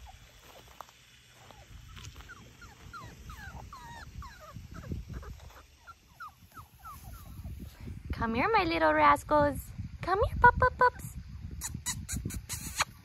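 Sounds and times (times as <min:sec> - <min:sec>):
puppies whimpering: 0:01.4 - 0:07.6.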